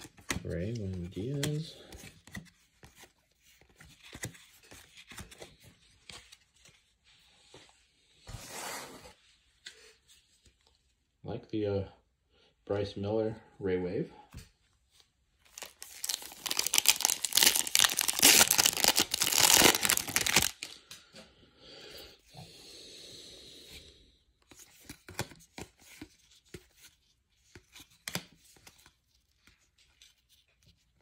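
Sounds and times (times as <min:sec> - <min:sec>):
cards rustling and clicking: 0:00.0 - 0:06.8, 0:15.4 - 0:21.0, 0:24.4 - 0:31.0
wrapper tearing and crinkling: 0:15.5 - 0:20.8.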